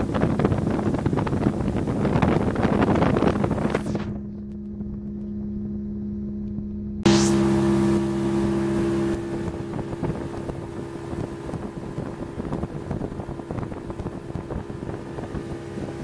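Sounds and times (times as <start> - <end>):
water rushing along hull: 0.0 - 3.8, 7.1 - 16.0
wind on microphone: 0.0 - 5.8, 7.1 - 16.0
motorboat engine running: 0.0 - 16.0.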